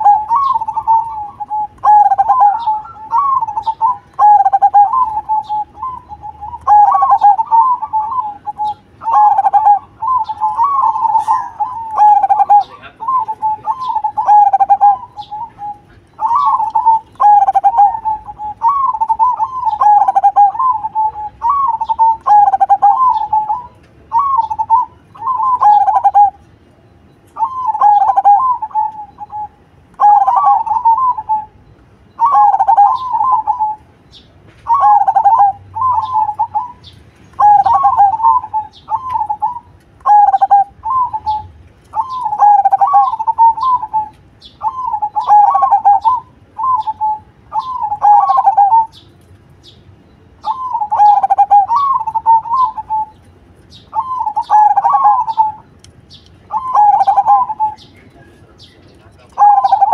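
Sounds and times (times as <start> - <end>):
dove cooing: 0.0 - 26.5, 27.3 - 34.0, 34.6 - 49.0, 50.4 - 55.7, 56.5 - 59.9.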